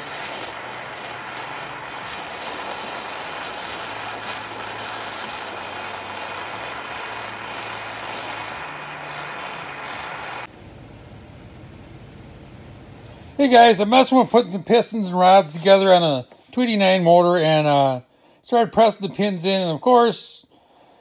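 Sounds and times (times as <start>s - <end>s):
gas torch flame hissing: 0.0s - 10.5s.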